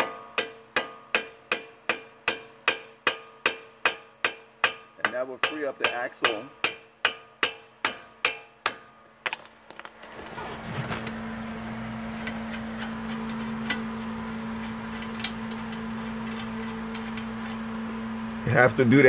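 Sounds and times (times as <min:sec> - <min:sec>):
hammer striking axle nut: 0:00.0 - 0:09.9, 0:12.2 - 0:17.6
steady low hum: 0:00.0 - 0:19.0.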